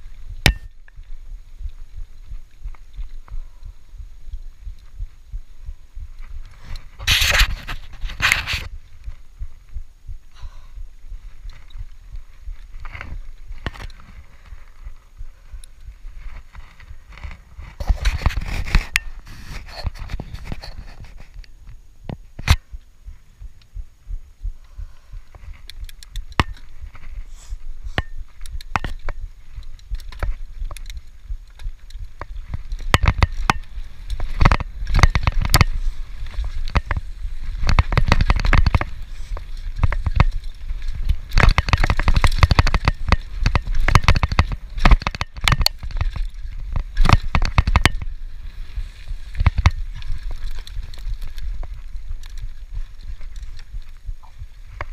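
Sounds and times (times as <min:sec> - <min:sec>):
low rumble: 0:00.0 - 0:17.8, 0:21.8 - 0:38.1
mountain bike rattling and knocking: 0:11.2 - 0:19.2, 0:24.8 - 0:27.2, 0:27.8 - 0:54.9.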